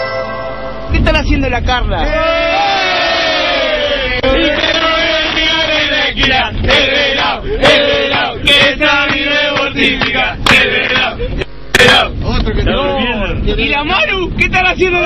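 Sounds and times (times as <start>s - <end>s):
men singing and chanting: 2.0s - 13.5s.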